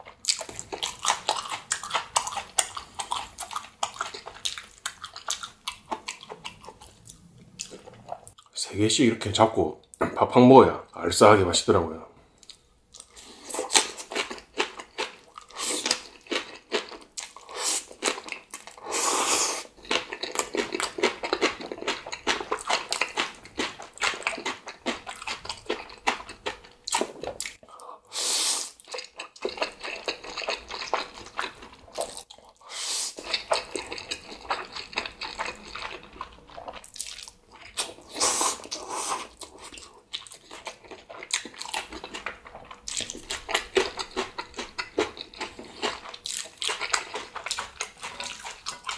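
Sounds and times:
chewing with wet crunches: 0.0 - 8.6, 12.4 - 27.8, 28.7 - 32.6, 33.2 - 48.9
noodle slurps: 38.0 - 39.4.

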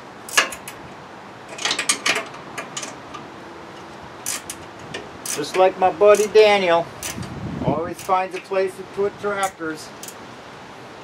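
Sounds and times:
metal frame clinking and clanking: 0.3 - 0.8, 1.4 - 6.4.

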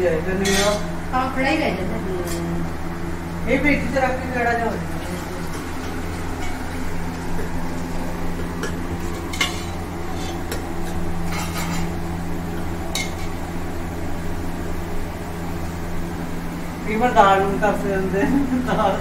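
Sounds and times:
steady low hum: 0.0 - 19.0
metal spoon scraping a pot: 9.3 - 10.6, 11.2 - 12.0.

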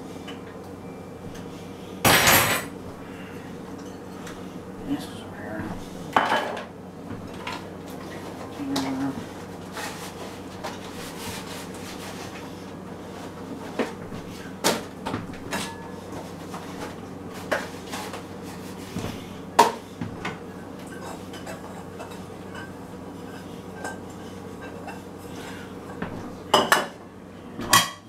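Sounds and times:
dishes clinking in sink: 2.1 - 2.8, 6.1 - 6.7, 20.8 - 25.0, 26.0 - 27.0.

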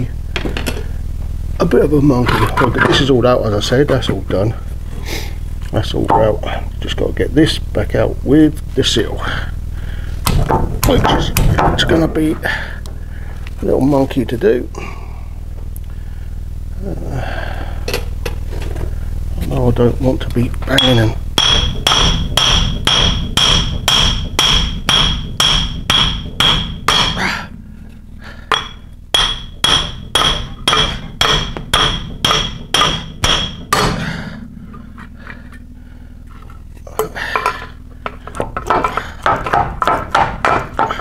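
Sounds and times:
hammer ringing on metal: 20.8 - 27.4, 28.5 - 34.8, 37.4 - 41.0.

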